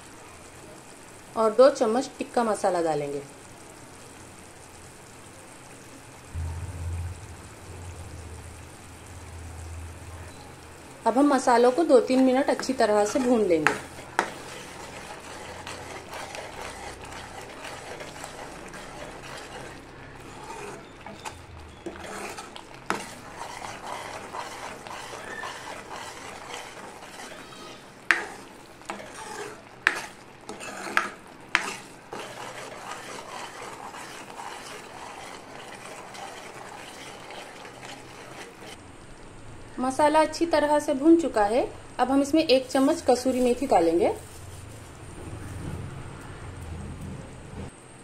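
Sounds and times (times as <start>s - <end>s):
paste sizzling in a pan: 0.0s - 6.4s, 7.3s - 45.6s
spoon scraping a pan: 11.2s - 38.8s.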